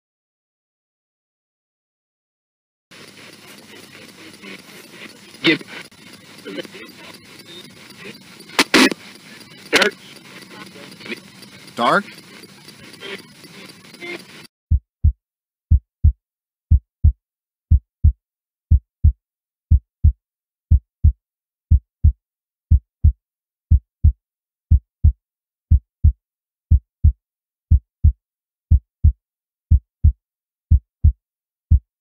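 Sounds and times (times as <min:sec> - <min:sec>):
heartbeat double thumps: 0:14.7 - 0:32.0.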